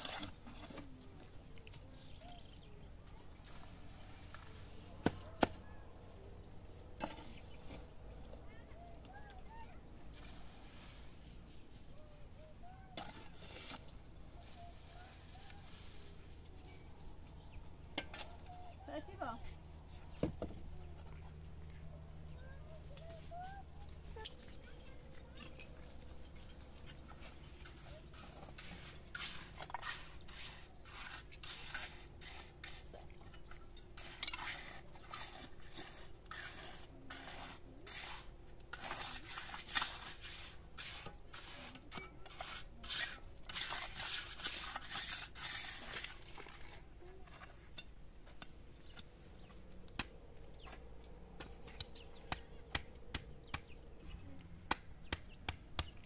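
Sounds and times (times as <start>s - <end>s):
scraping strokes: 0.0s - 2.1s, 9.2s - 17.1s, 22.4s - 49.1s.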